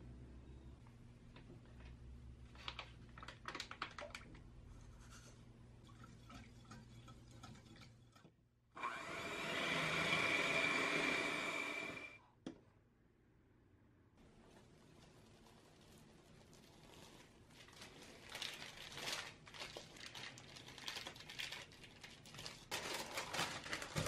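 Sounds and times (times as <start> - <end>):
electric hand mixer whining: 8.8 - 12.2.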